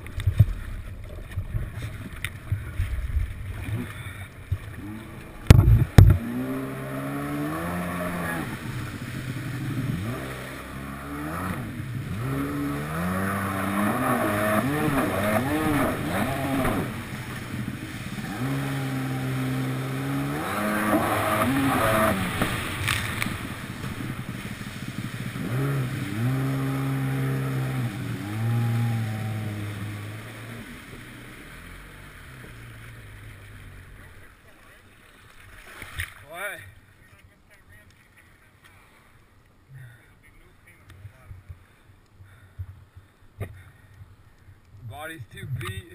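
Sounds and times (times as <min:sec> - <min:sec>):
jet ski engine revving: 0:00.0 - 0:35.3.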